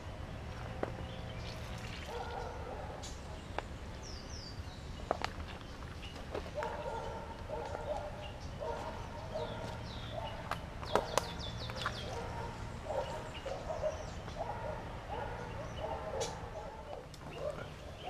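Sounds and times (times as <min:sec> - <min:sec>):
birds cackling chatter: 0:05.4 - 0:18.0.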